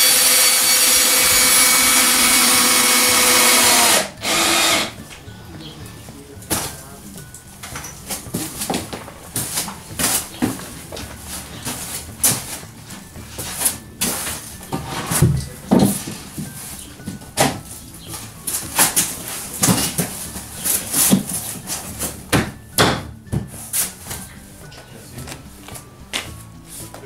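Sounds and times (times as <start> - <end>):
wooden floorboards knocking: 7.7 - 24.3.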